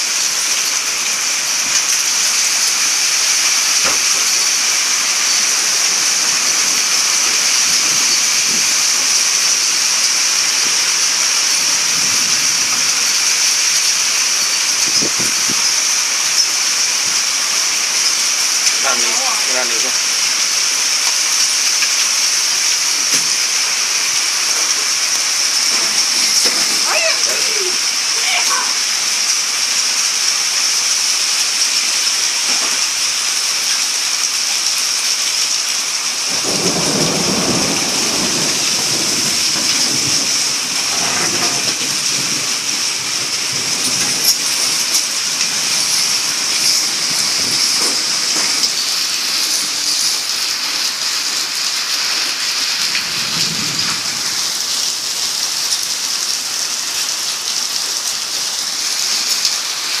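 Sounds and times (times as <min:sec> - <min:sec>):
torrential rain: 0:00.0 - 1:00.0
thunder rumbling: 0:36.3 - 0:48.9.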